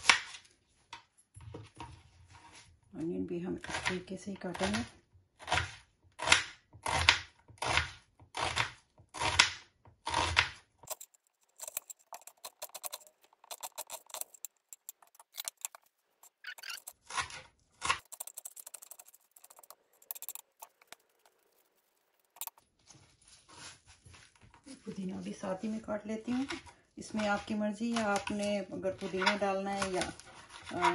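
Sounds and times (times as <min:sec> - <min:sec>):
knife slicing onion on board: 0:04.6 - 0:10.7.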